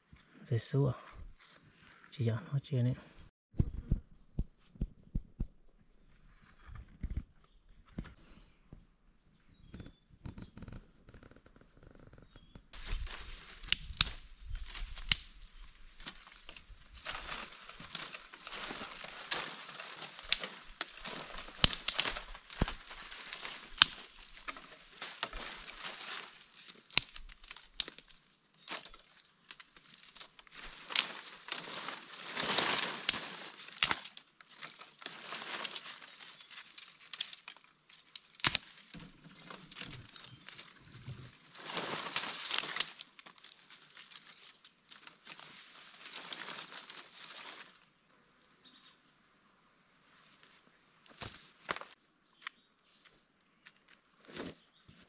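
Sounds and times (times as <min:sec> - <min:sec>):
dry material rustling and crackling: 0:12.8 - 0:47.9.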